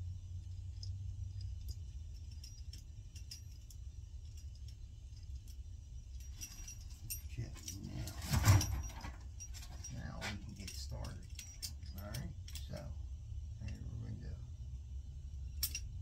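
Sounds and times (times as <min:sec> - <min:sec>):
low steady hum: 0:00.0 - 0:16.0
metal clatter: 0:00.4 - 0:13.0
metal tools clinking and rattling: 0:00.5 - 0:13.0, 0:15.5 - 0:16.0.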